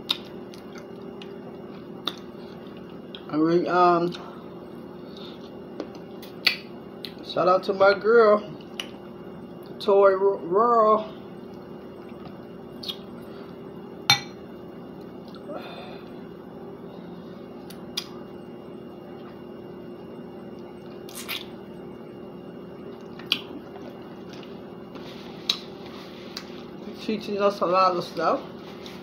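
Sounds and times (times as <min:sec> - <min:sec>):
wet mouth eating sounds: 0:00.0 - 0:03.3, 0:12.0 - 0:13.2, 0:20.8 - 0:21.6, 0:22.9 - 0:24.6
steady low hum: 0:00.0 - 0:29.0.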